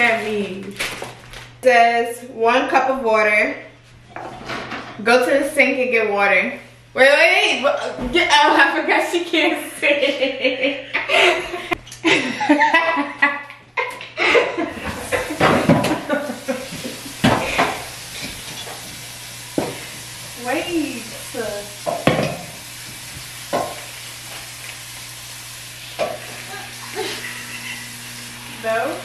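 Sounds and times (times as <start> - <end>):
voices and laughter: 8.5 - 17.2, 26.3 - 27.9
dishes knocking: 15.0 - 16.2, 21.8 - 22.6, 23.5 - 23.8.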